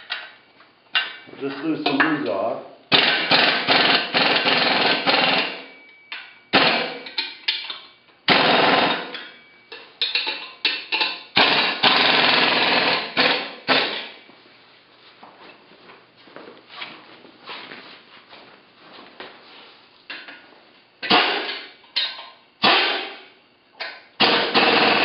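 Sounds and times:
tool rattling clicks on bolts: 8.7 - 14.0.

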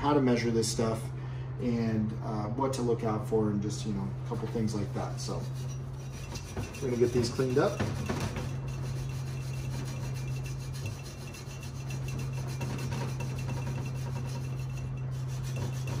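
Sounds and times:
scouring pad scrubbing metal: 4.4 - 16.0.

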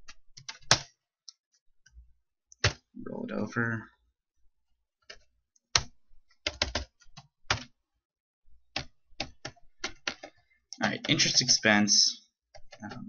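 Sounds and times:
computer keyboard key presses: 5.1 - 7.7.

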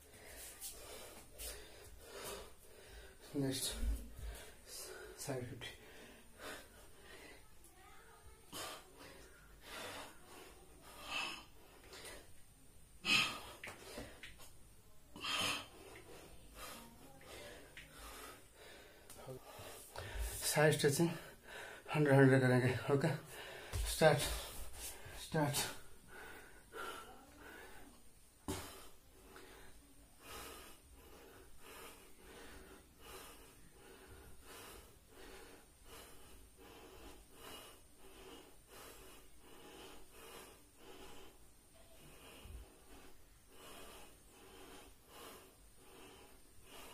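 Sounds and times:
man breathing hard: 0.0 - 7.5, 15.2 - 20.4, 21.1 - 21.9, 23.2 - 46.9.

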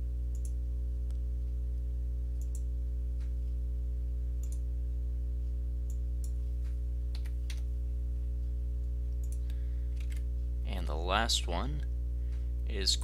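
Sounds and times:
low electrical hum: 0.0 - 13.0
computer mouse clicks: 0.3 - 0.6, 2.4 - 2.7, 4.4 - 4.6, 9.2 - 10.2.

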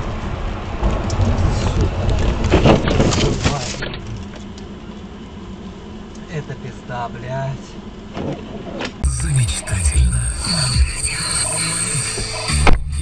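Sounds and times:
car tyres rumbling: 0.0 - 6.4.

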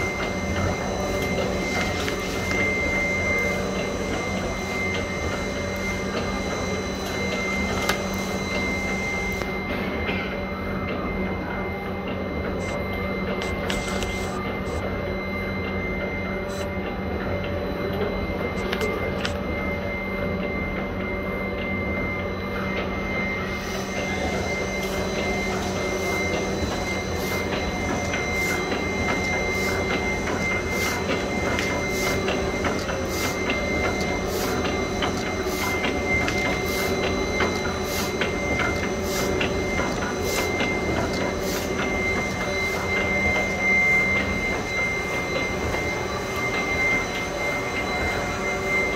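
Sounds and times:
constant high whine: 0.0 - 48.9
printing machine mechanical hum: 0.0 - 48.9
regular mechanical ticking: 24.8 - 46.6.

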